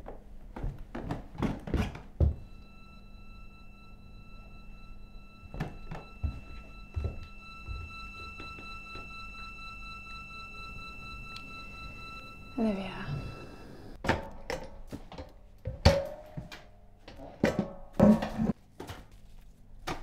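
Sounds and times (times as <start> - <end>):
high steady tone: 2.4 - 14.0
boot footsteps on wooden floor: 5.6 - 8.8.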